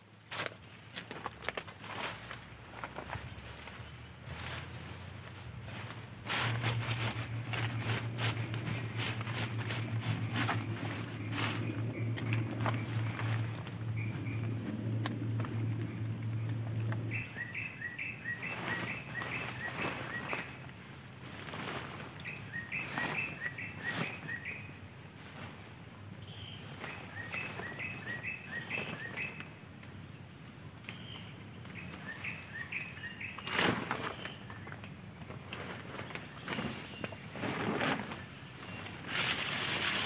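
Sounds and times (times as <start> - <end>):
footsteps on dry leaves: 0.2 - 17.5, 18.2 - 25.8, 35.6 - 40.0
tent fabric rustling: 0.3 - 14.4, 18.2 - 29.2, 35.4 - 40.0
high-pitched insect drone: 3.3 - 35.1
bird singing: 6.8 - 20.8, 22.2 - 24.9, 26.2 - 29.7, 30.8 - 34.8.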